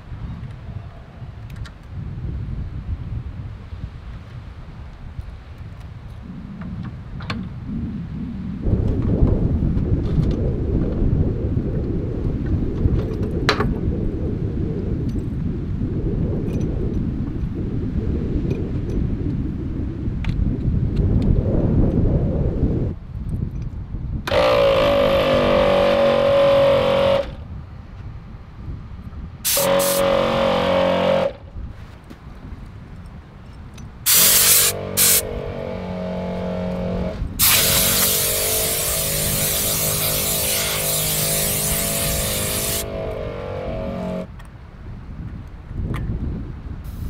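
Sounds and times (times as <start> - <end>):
air compressor humming: 24.3 - 27.3, 29.5 - 31.3, 34.1 - 44.3
sharp blasts of air: 24.3 - 27.4, 29.4 - 31.4, 34.0 - 44.3
air hissing from hose: 29.5 - 30.1, 34.1 - 35.3, 37.4 - 42.9.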